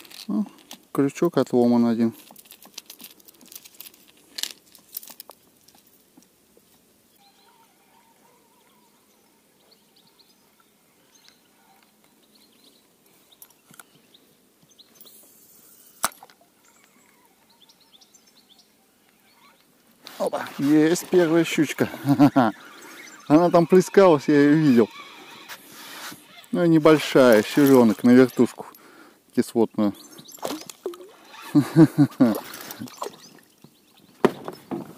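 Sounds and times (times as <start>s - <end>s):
faint bird chirps: 7.1s - 20.6s, 32.7s - 34.8s
fishing line hissing off reel: 24.4s - 26.6s.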